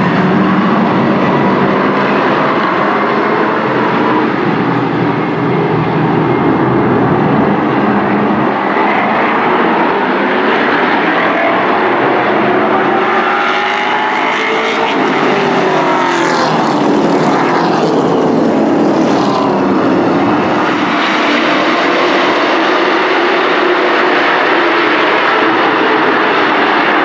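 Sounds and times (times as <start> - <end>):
race truck engines: 0.0 - 27.0
trucks passing close: 0.0 - 27.0.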